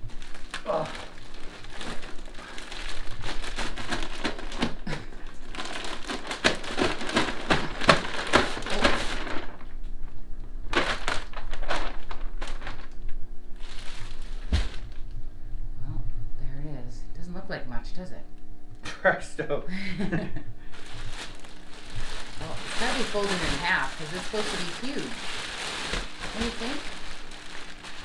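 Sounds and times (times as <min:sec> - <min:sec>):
plastic wrapping crinkling: 0:00.0 - 0:15.2, 0:20.6 - 0:28.0.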